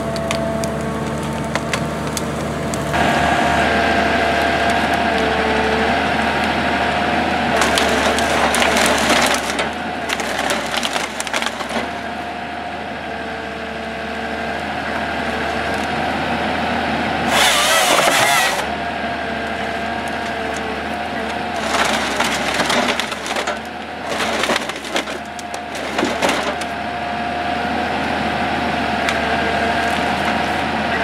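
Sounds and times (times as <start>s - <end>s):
saw cutting through log: 0.0s - 12.3s, 17.1s - 26.9s
wood crackling and splintering: 0.0s - 12.3s, 13.5s - 16.4s, 17.2s - 31.0s
harvester engine and hydraulics: 0.0s - 31.0s.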